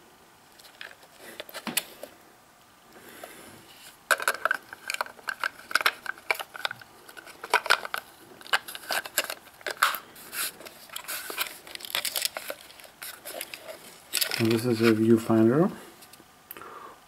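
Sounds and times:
plastic clicking and rattling: 4.1 - 10.0, 10.6 - 15.0.

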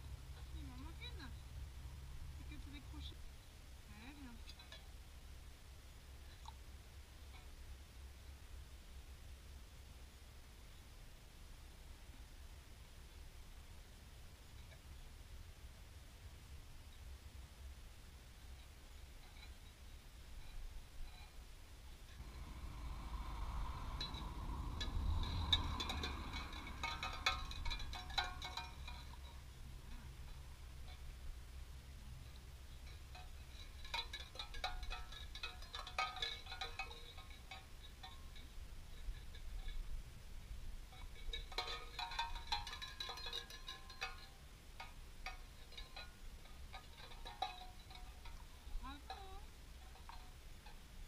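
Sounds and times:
wind rumble on microphone: 18.4 - 51.0
ringing metallic clinks: 22.1 - 31.2, 32.2 - 40.0, 40.9 - 50.9.

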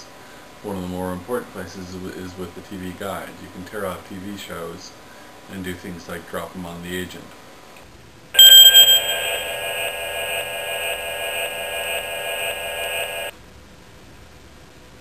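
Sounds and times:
buzzy electronic tone: 8.4 - 13.3
rapid electronic blips: 8.4 - 13.3.

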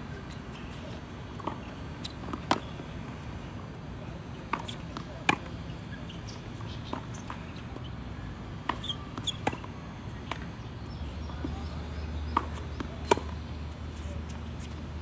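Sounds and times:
tennis ball bouncing on court: 1.4 - 3.2, 4.4 - 5.6, 8.6 - 10.6, 11.2 - 13.4
tennis ball struck by rackets: 12.3 - 13.4.

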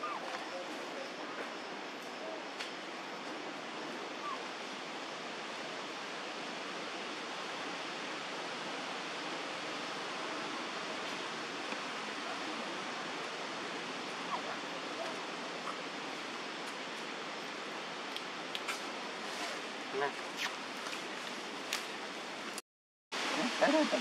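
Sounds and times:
steady rushing background noise: 0.0 - 22.6.

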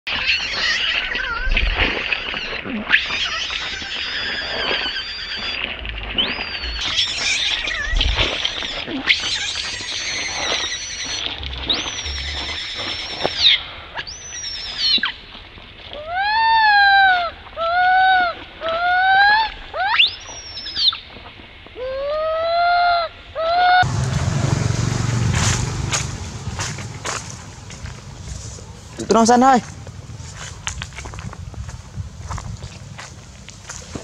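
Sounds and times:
baby monkey screaming: 2.3 - 5.6, 6.4 - 13.6, 16.0 - 21.0, 21.8 - 23.9
monkey whistle-like coos: 8.6 - 15.1.

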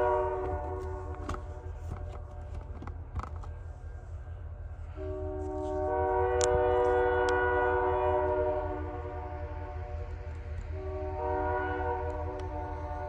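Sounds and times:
locomotive air horn chord: 0.0 - 2.1, 4.8 - 13.0.

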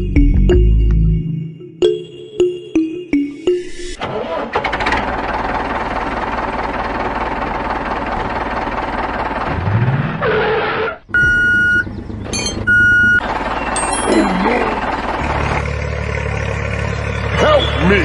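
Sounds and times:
tractor engine: 3.5 - 18.0
reversing alarm beep: 11.1 - 13.2.

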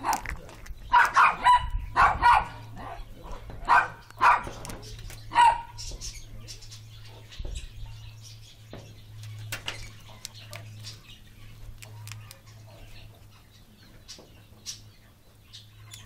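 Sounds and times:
parrot beaks clicking and crunching: 0.0 - 1.4, 3.6 - 5.3, 9.2 - 12.7.

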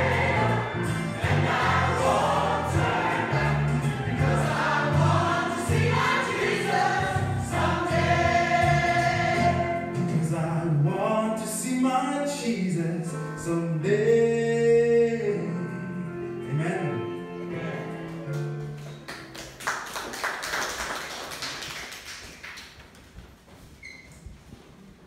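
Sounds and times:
choir singing gospel song: 0.0 - 10.6.

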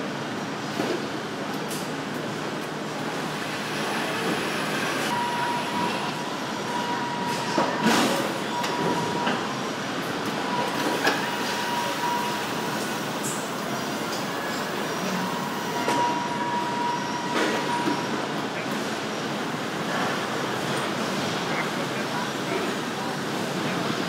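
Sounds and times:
electronic beep tone: 5.1 - 7.9.

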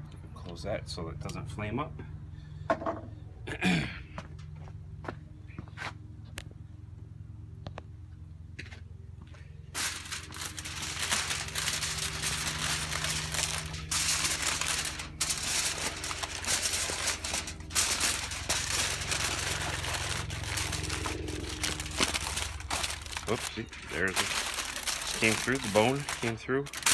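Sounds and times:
aluminium foil crinkling: 9.7 - 26.9.

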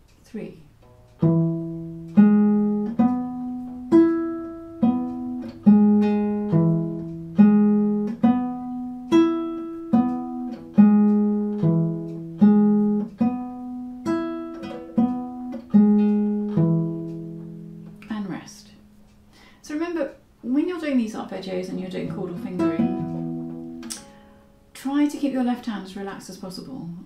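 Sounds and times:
plucked bass viol arpeggio: 0.8 - 18.0, 21.7 - 23.8.

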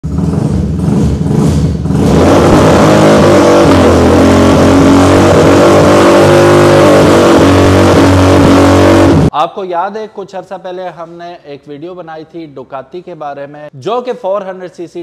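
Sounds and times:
motorcycle engine revving: 0.0 - 9.3.

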